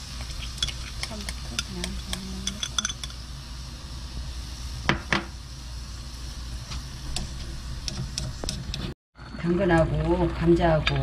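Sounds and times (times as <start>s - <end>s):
steady low hum: 0.0s - 9.7s
spoon tapping a pan: 0.2s - 3.2s.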